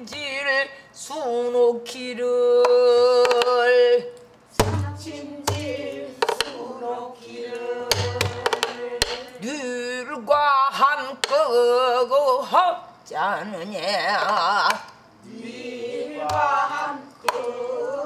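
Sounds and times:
woman singing: 0.0s - 6.8s
low drum thumps: 4.6s - 5.7s.

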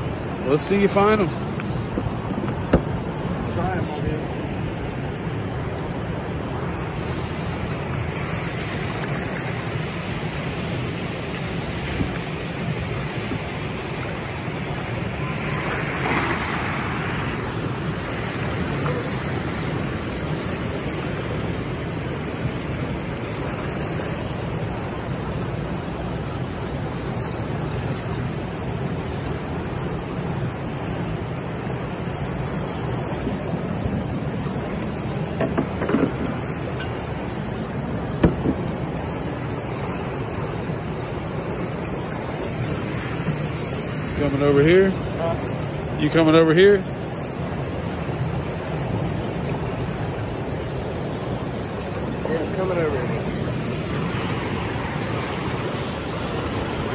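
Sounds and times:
churning water rushing: 0.0s - 56.9s
water splash: 11.2s - 24.4s, 32.8s - 45.6s.

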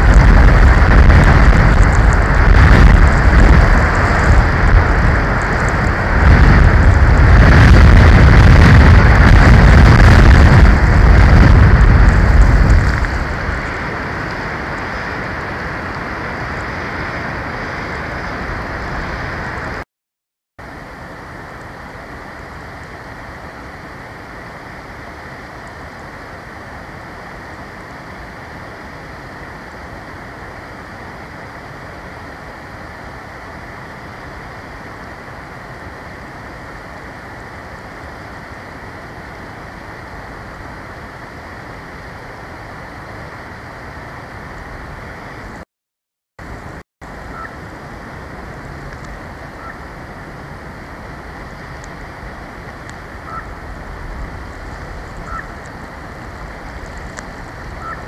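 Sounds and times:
wind noise: 0.0s - 19.8s, 46.4s - 58.0s.

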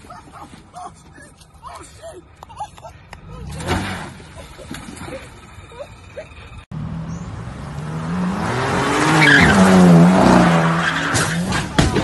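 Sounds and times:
tyres skidding and squealing: 3.0s - 12.0s.

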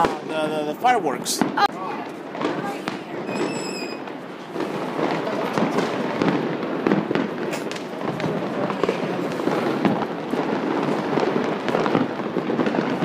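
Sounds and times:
fireworks crackling and banging: 0.0s - 13.0s.

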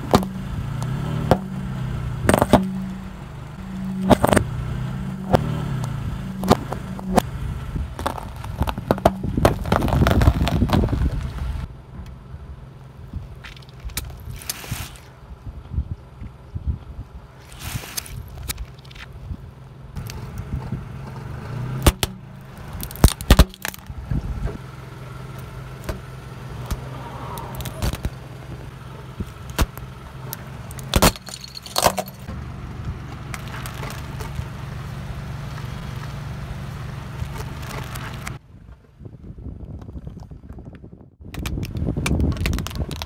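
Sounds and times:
car engine running: 0.0s - 38.4s
plastic toys cracking and snapping: 8.0s - 11.3s, 22.8s - 23.9s, 41.3s - 43.0s.

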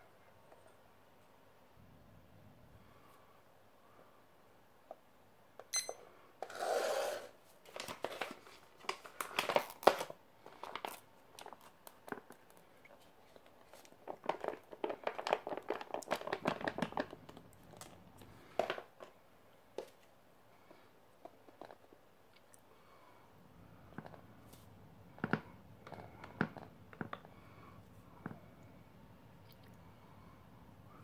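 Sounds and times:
kitchen timer beep: 5.7s - 6.0s
foil pouch crinkling: 7.6s - 18.9s.

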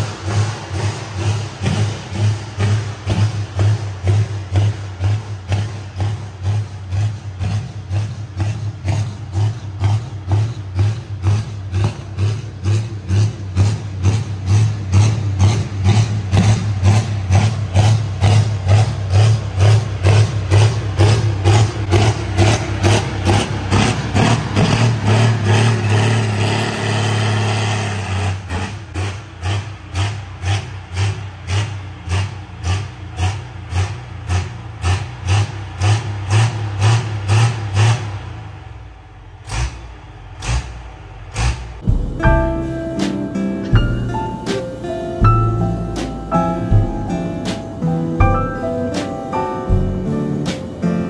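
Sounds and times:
diesel tractor engine running: 0.0s - 51.0s
music with a steady beat: 41.8s - 51.0s.

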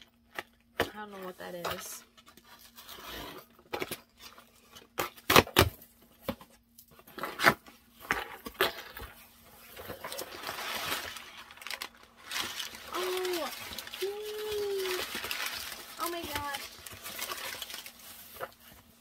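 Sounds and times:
packaging tearing and rustling: 8.4s - 19.0s.

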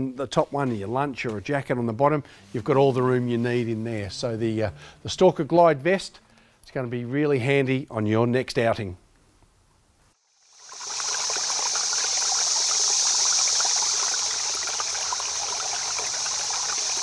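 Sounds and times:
stream water rushing: 10.5s - 17.0s.

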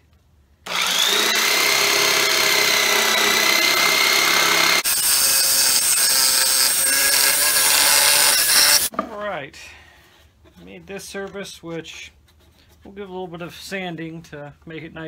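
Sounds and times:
jigsaw sawing through wood: 0.7s - 8.9s.

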